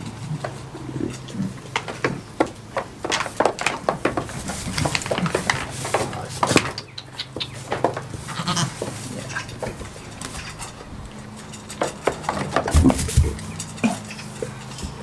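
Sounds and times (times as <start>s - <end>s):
hooves knocking on wooden boards: 0.0s - 15.0s
goats bleating: 8.2s - 11.3s, 13.4s - 15.0s.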